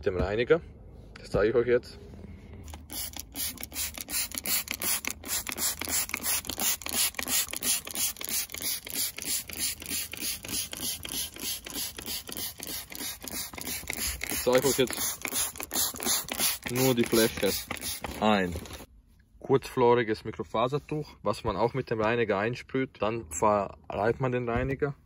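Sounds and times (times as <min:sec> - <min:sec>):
spray bottle spraying: 0:02.7 - 0:18.9.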